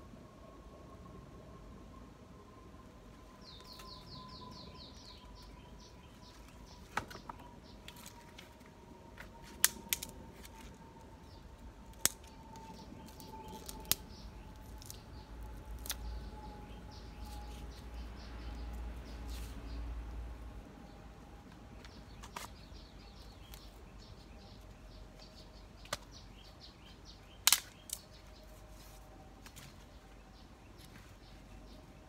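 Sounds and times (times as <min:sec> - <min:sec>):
bamboo stake clicks and snaps: 0:09.4 - 0:10.7, 0:11.9 - 0:16.2, 0:25.8 - 0:26.2, 0:27.4 - 0:28.2.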